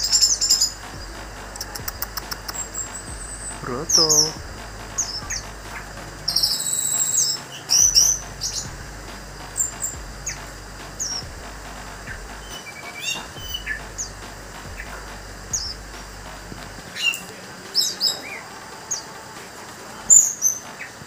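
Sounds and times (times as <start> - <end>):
bird fast high trill: 1.6 - 8.7
bird sweeping whistles: 6.3 - 8.2.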